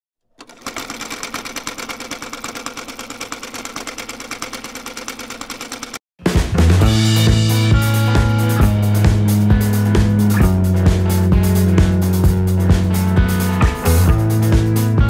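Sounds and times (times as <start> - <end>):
sewing machine rattling: 0.3 - 6.0
music with drums: 6.2 - 15.0.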